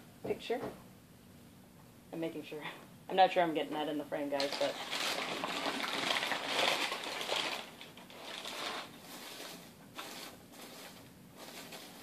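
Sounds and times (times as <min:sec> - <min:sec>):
packing filler rustling: 0:04.4 - 0:12.0
packing paper crumpling: 0:04.4 - 0:12.0.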